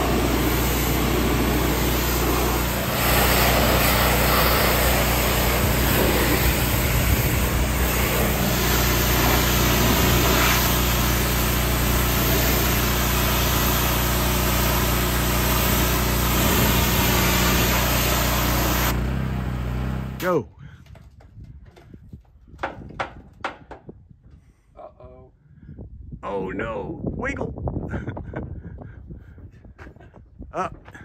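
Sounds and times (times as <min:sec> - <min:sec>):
high-pressure water jet hissing: 0:00.0 - 0:19.2
pressure washer motor humming: 0:00.0 - 0:20.2.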